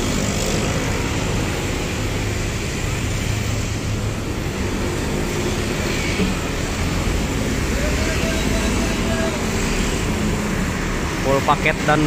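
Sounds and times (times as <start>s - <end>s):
bus diesel engine drone: 0.0s - 12.0s
road traffic noise: 0.0s - 12.0s.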